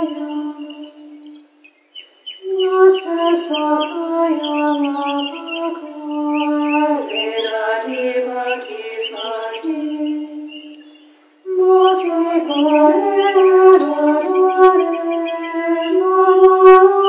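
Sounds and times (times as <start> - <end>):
women singing a sacred chant: 0.0 - 1.5, 2.4 - 17.0.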